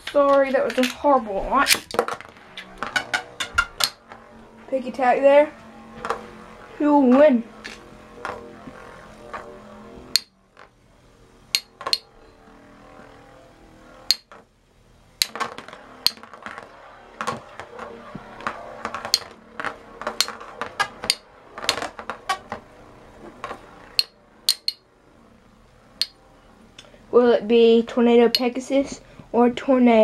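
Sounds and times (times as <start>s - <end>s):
spinning tops clashing: 15.2s - 17.6s.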